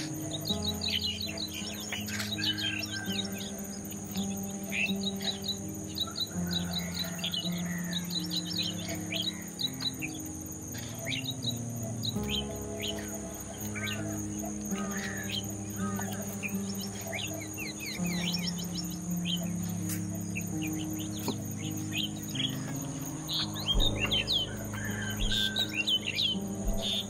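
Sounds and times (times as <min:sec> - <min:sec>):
background music notes: 0:00.0 - 0:27.0
birds chattering: 0:00.0 - 0:27.0
insect drone: 0:00.0 - 0:27.0.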